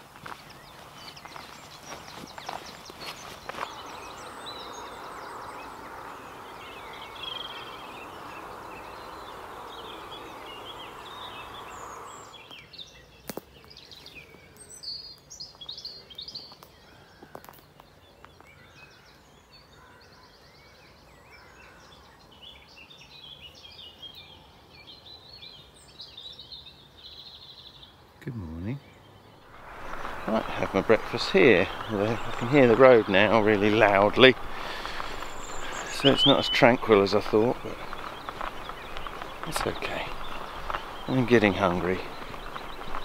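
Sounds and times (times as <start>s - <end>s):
distant road traffic rumble: 0.0s - 12.6s, 29.3s - 43.0s
songbirds chirping and singing: 0.0s - 43.0s
steady rushing noise: 1.6s - 12.5s, 29.5s - 43.0s.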